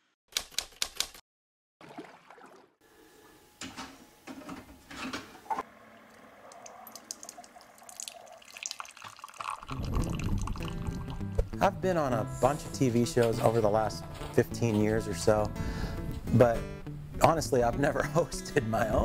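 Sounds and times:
water pouring into a ceramic mug: 5.8 - 11.3.

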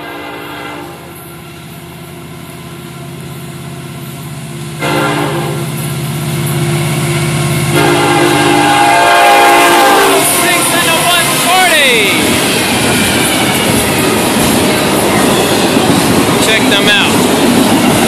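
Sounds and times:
train air horn blasts: 0.0 - 1.2, 4.8 - 5.8, 7.7 - 12.0
diesel locomotive rumble: 0.0 - 18.0.

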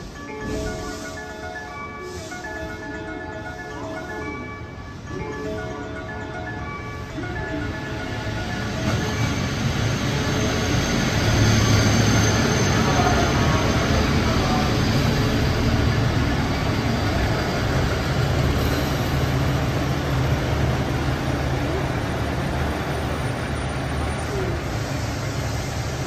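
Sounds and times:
diesel engines droning: 0.0 - 26.0
wheels rushing on rails: 4.2 - 26.0.

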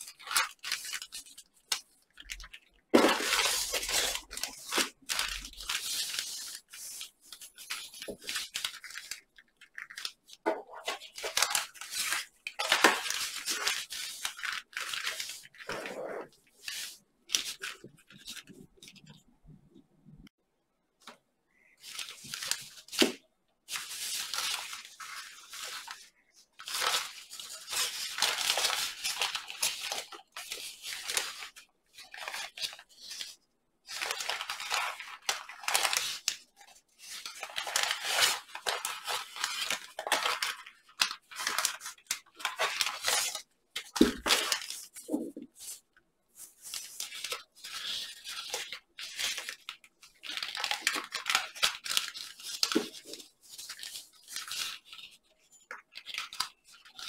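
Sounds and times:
paper rustling and crinkling: 0.0 - 19.3, 21.0 - 57.0.

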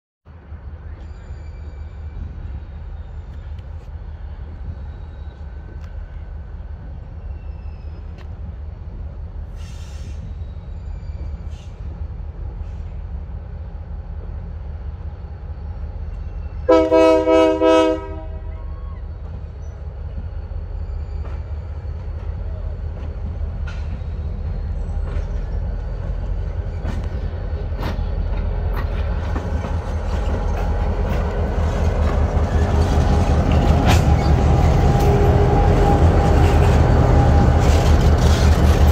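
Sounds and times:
diesel locomotive rumble: 0.4 - 38.9
train horn blast: 16.6 - 18.6, 32.3 - 37.8.

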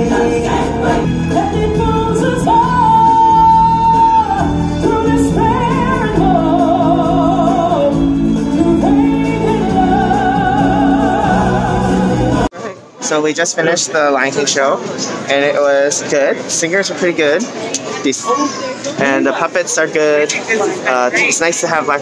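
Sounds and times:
musical accompaniment: 0.0 - 12.5
person singing long notes: 0.0 - 12.5.

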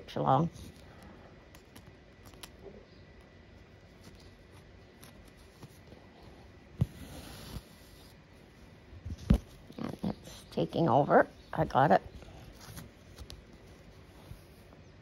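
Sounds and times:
needle and thread through fabric: 3.8 - 10.6.

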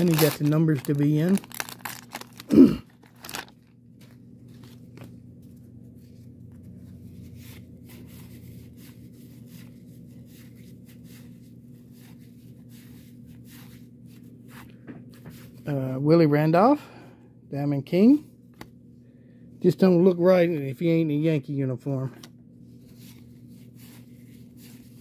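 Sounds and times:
wrapper crinkling and tearing: 0.0 - 3.8.

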